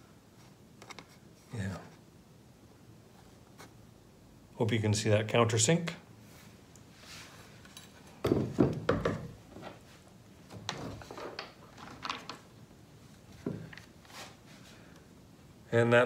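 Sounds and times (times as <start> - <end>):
metal guard knocking on workbench: 8.2 - 9.4.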